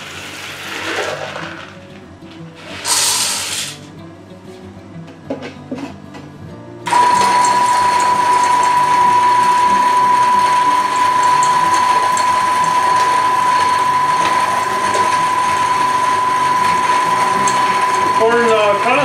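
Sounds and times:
grinder whining while grinding corn: 0.0 - 1.9, 6.9 - 19.0.

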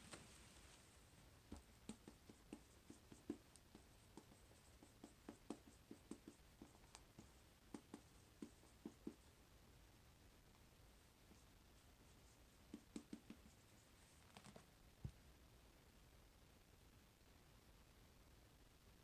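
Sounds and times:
marker writing on whiteboard: 1.5 - 9.3, 12.2 - 14.5.

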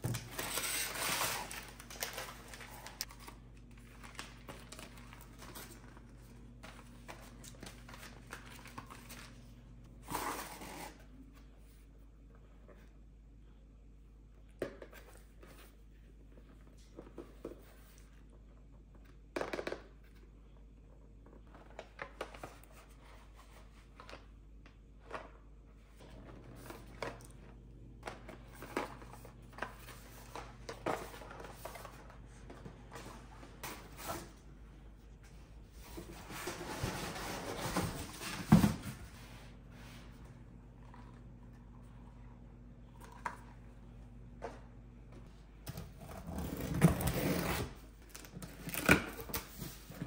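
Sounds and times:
cardboard scraping on floor: 35.7 - 40.2, 45.8 - 47.8.

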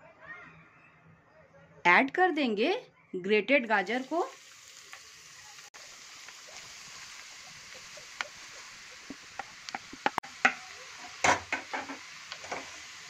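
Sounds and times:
faint sizzle in hot fat: 3.7 - 13.0.

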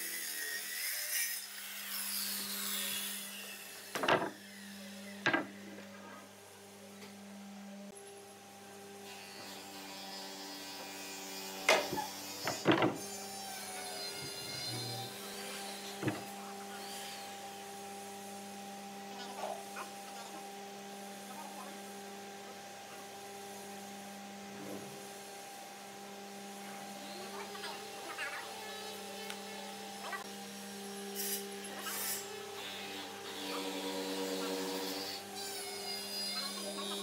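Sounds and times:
steady electrical hum: 2.3 - 37.0
wooden slabs knocking together: 4.0 - 4.3, 5.3 - 5.6, 11.7 - 13.0.

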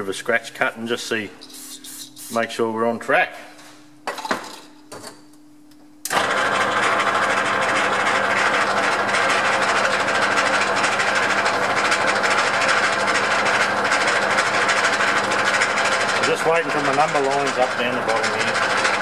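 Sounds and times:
lathe motor running: 6.1 - 19.0.

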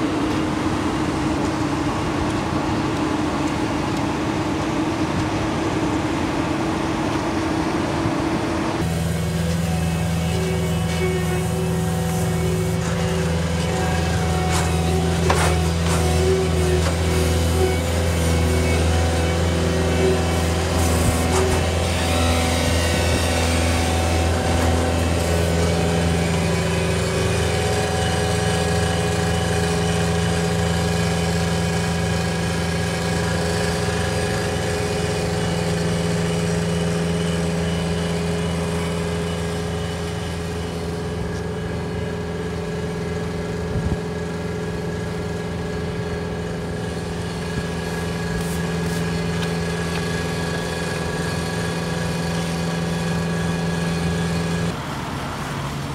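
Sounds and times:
diesel engine hum: 0.0 - 55.9
hydraulic hiss: 47.7 - 50.8.

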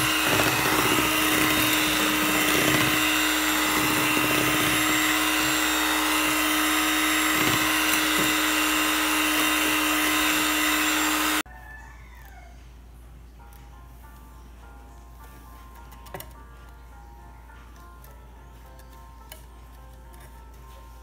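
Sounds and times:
electric hand mixer whirring: 0.0 - 11.5.

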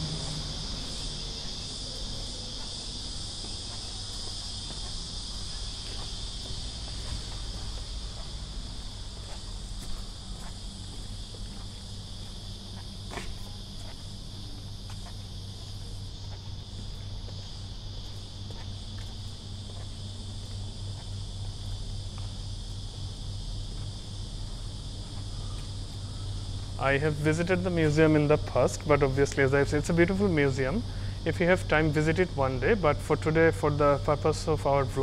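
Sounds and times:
soft footsteps on paving: 0.0 - 29.5
cicadas buzzing: 0.0 - 35.0.

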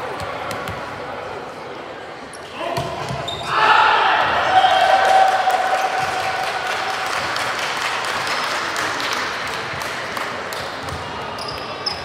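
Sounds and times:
spectators applauding and cheering: 4.5 - 10.6.

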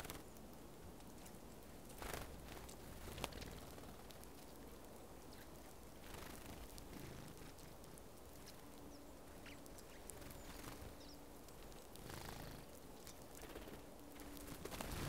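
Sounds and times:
birds pecking at seeds: 0.0 - 15.0
faint low hum: 0.0 - 15.0
low outdoor hiss: 0.0 - 15.0
sparrows chirping: 8.4 - 15.0.

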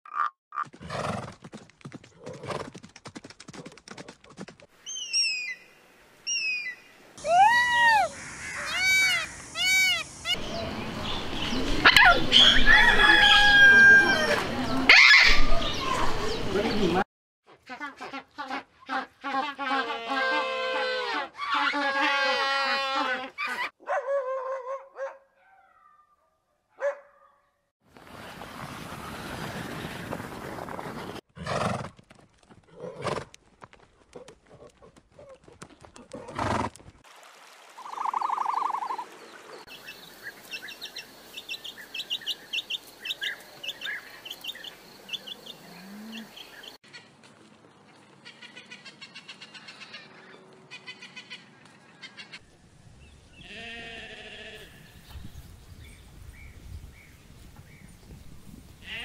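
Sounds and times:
snow crunching and thudding: 27.9 - 31.2
sheep bleating: 53.4 - 54.8.

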